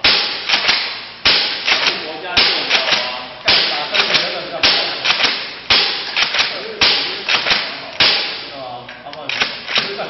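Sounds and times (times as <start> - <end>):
foam dart blaster firing: 0.0 - 8.5
plastic pump clacks: 9.2 - 10.0.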